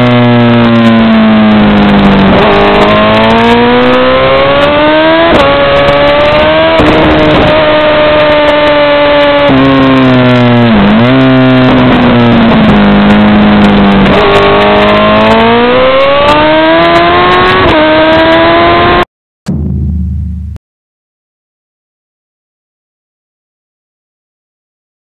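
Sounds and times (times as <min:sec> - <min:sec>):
motorcycle engine racing: 0:00.0 - 0:19.7.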